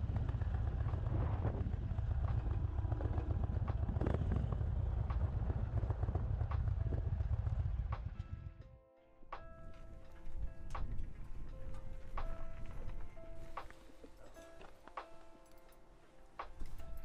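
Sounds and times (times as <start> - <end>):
motorcycle engine running: 0.0 - 8.6.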